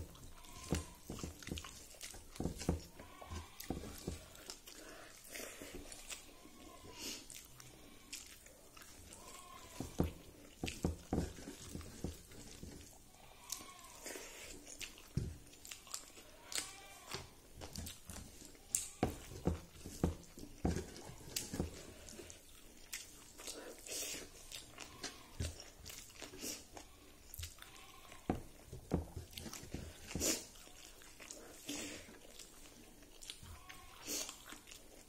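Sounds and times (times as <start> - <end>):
chewing and lip smacks: 0.0 - 19.0, 19.7 - 27.8, 29.2 - 35.0.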